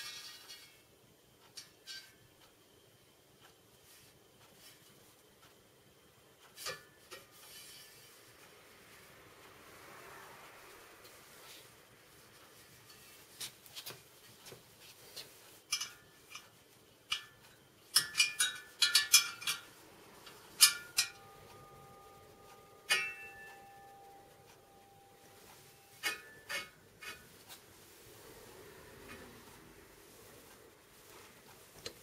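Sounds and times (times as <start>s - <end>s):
spoke wrench clicking on spokes: 15.3s - 21.2s
spokes ringing: 15.6s - 27.3s.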